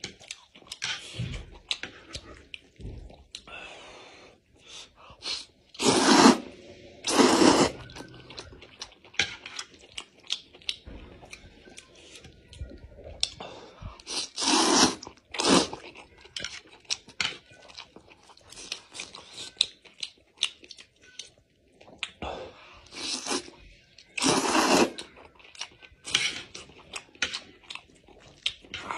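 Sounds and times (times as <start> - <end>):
wet chewing: 0.0 - 3.5, 7.1 - 22.2, 22.8 - 28.9
man slurping noodles: 5.2 - 7.9, 14.1 - 15.8, 24.2 - 25.0.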